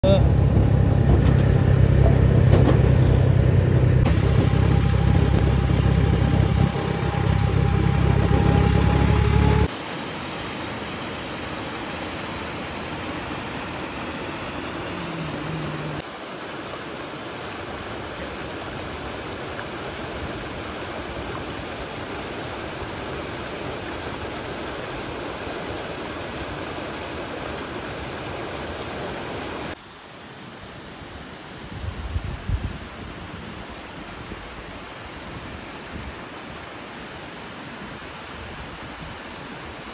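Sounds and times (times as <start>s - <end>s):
tractor engine running: 0.0s - 9.7s
waterfall rushing: 3.3s - 29.8s.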